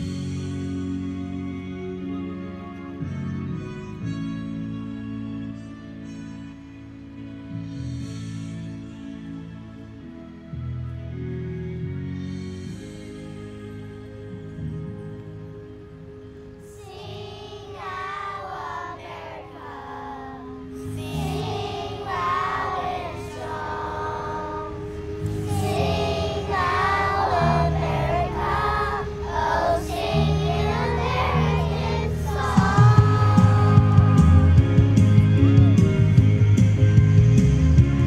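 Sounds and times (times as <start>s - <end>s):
children's choir singing: 16.6s - 35.0s.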